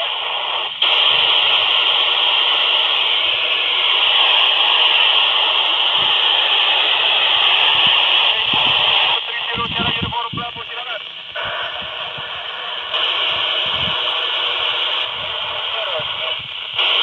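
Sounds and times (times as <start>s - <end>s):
radio static hiss: 0.0s - 17.0s.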